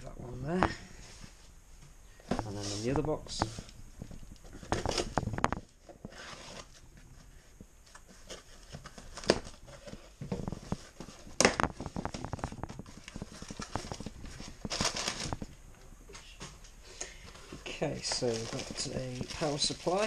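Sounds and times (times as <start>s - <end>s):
cardboard rustling and scraping: 2.3s - 15.6s, 17.3s - 20.0s.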